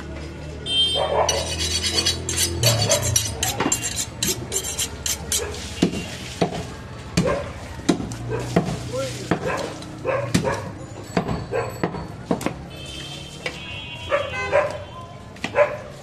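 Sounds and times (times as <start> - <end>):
knife scraping and clinking: 1.2 - 5.7.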